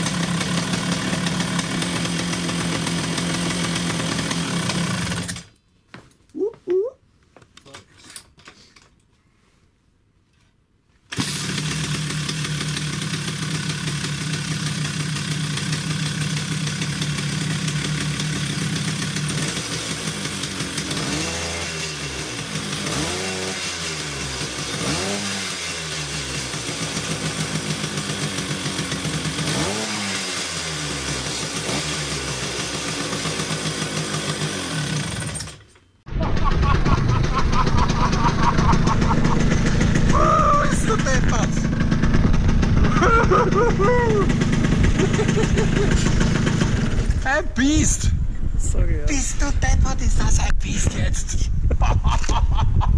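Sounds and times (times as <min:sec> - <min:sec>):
scooter engine revving: 0:00.0 - 0:05.5, 0:11.1 - 0:47.3.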